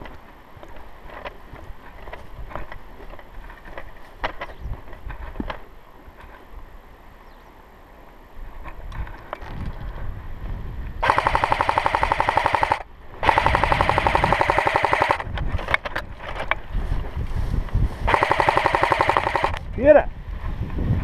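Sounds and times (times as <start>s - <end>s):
airsoft rifle firing full auto: 11.0s - 15.3s, 18.1s - 19.6s.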